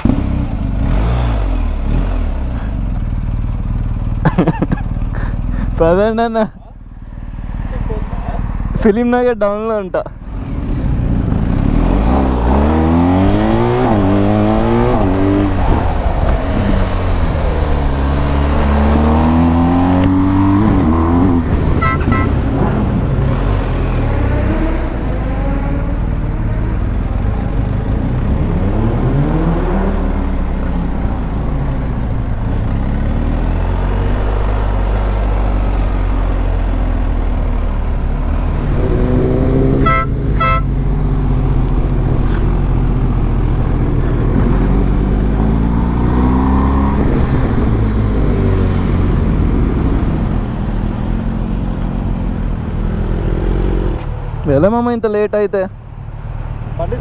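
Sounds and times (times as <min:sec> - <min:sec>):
motorcycle engine accelerating: 0:00.0 - 0:05.8, 0:10.2 - 0:54.3
vehicle horn beeping: 0:21.8 - 0:22.4, 0:39.8 - 0:40.8.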